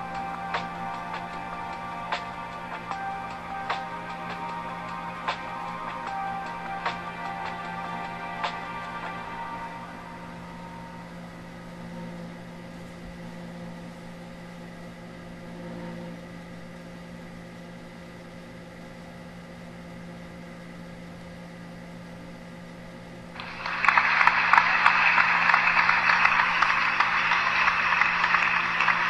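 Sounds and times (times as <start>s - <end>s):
faint steady tones: 0.0s - 17.4s
steady low hum: 0.0s - 29.0s.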